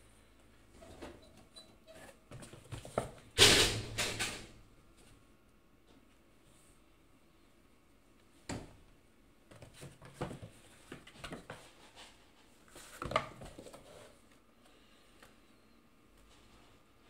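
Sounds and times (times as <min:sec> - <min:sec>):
cats scratching cardboard: 0:09.5 - 0:14.5.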